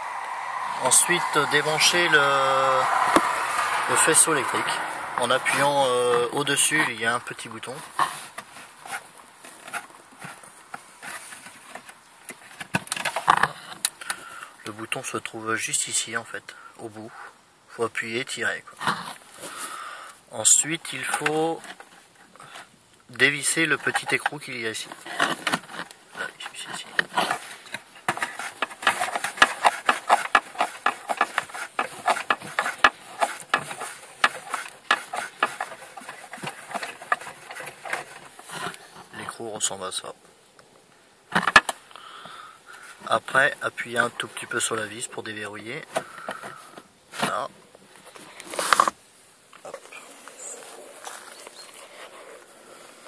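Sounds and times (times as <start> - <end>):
clicks and scrapes of unscrewing nut: 26.9 - 38.8.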